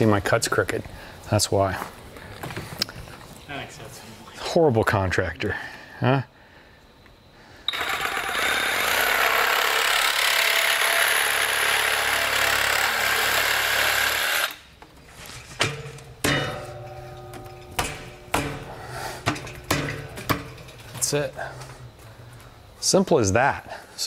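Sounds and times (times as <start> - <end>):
power tool cutting pipe: 7.7 - 14.7
pipe knocks: 15.6 - 21.2.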